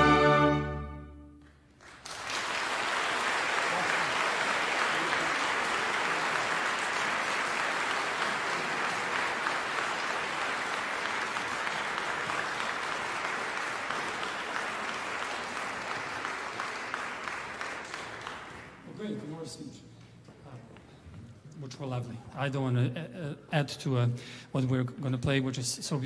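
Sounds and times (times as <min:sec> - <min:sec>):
audience applauding: 0:01.4 - 0:19.2.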